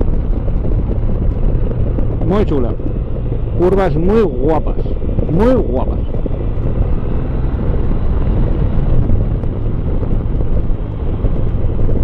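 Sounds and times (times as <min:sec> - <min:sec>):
motorcycle engine running: 0:00.0 - 0:12.0
wind rushing over microphone: 0:00.0 - 0:12.0.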